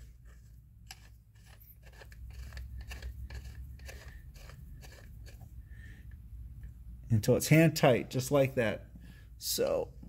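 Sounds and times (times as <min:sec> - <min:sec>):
metallic clicks and scrapes: 0:00.0 - 0:05.6
low steady hum: 0:00.0 - 0:10.0.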